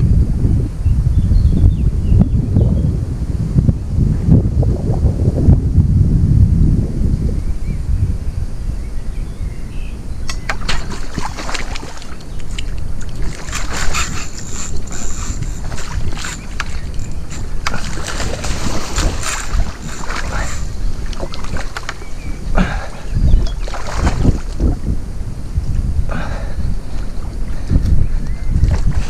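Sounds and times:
wind rumbling on microphone: 0.0 - 29.0
clicks and rustles: 10.3 - 22.0.

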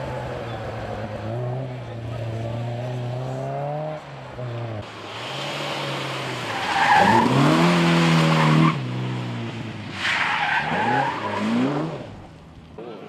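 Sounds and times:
rally car engines revving: 0.0 - 13.0
tyres hissing on wet road: 4.9 - 9.2.

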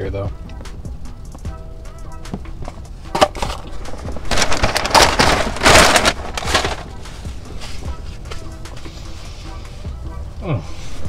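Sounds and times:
paper and cardboard crinkling: 3.2 - 8.5.

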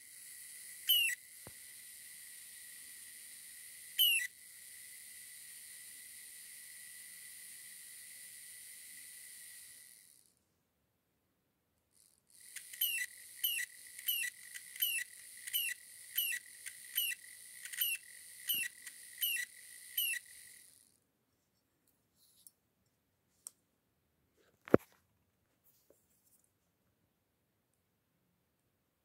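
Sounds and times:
small motor whining: 0.0 - 10.3, 12.0 - 21.0.

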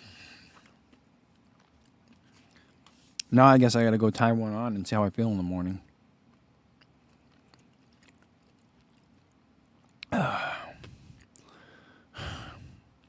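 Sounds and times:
man groaning: 10.1 - 10.8
breathy exhales: 10.1 - 12.9.

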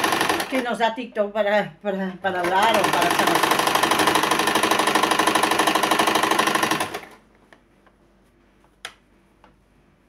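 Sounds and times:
sewing machine stitching: 0.0 - 0.8, 2.3 - 7.2.

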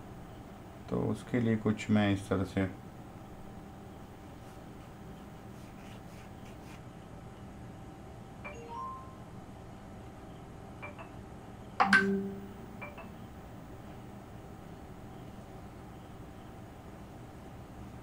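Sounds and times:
room hum: 0.0 - 18.0
short ringing tones: 11.8 - 13.2.

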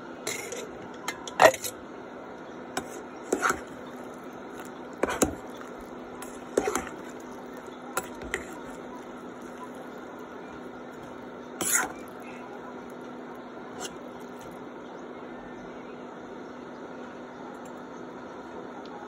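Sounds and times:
steady low hum: 0.0 - 19.0
metal spoon scraping a steel pan: 0.2 - 1.8, 2.8 - 10.0, 11.0 - 12.4.

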